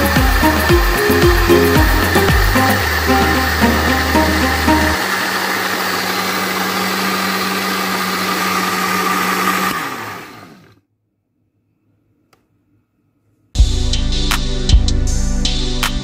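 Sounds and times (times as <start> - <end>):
electric blender running: 0.0 - 10.8.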